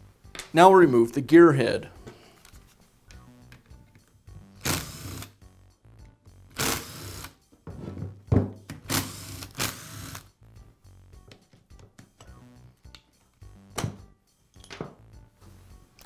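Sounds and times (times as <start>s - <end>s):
cordless electric screwdriver running: 4.6s - 5.3s, 6.6s - 7.4s, 8.9s - 10.3s.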